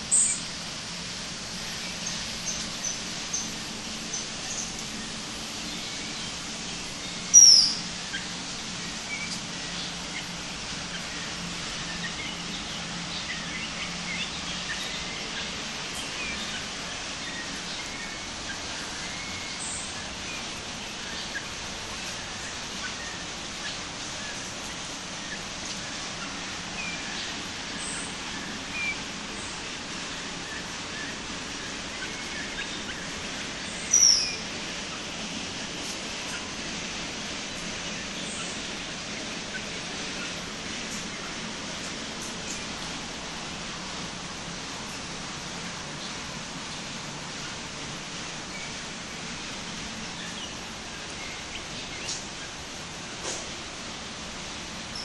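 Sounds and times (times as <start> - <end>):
steady hiss: 0.0 - 55.0
birds chirping and calling: 1.6 - 29.6, 30.5 - 35.2.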